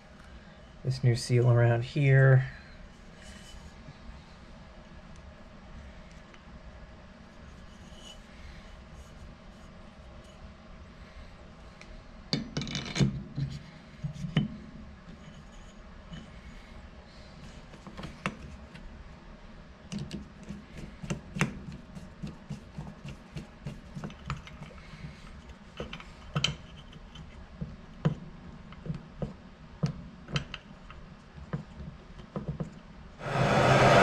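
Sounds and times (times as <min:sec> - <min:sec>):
gas torch hissing: 0:33.2 - 0:34.0.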